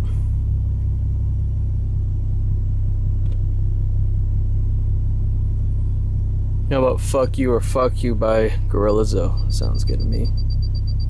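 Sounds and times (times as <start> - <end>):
deep rumble in car cabin: 0.0 - 11.0.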